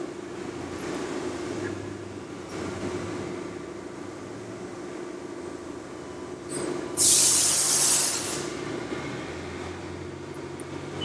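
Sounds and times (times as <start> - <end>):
compressed air hissing from valve: 7.0 - 8.6.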